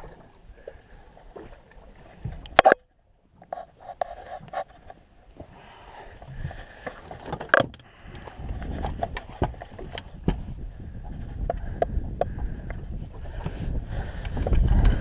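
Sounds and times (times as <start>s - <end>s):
knocks and clicks in boat: 0.6s - 5.5s, 6.2s - 15.0s
wind rumble on microphone: 3.3s - 15.0s.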